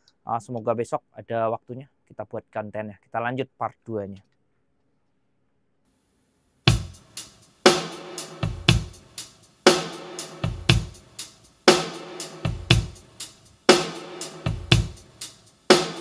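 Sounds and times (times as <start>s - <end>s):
drum-heavy music over speaker: 6.7s - 16.0s.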